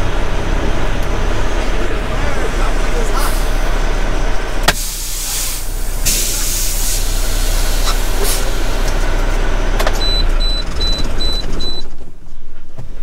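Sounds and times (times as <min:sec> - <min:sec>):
diesel truck engine idling: 0:00.0 - 0:12.7
compressed air hissing: 0:04.7 - 0:08.8.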